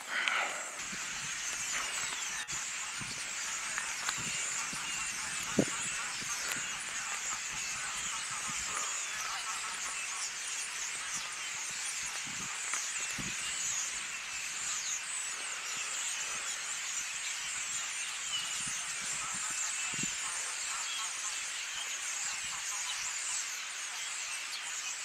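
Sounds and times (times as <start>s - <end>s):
chorus of high chirps: 0.0s - 25.0s.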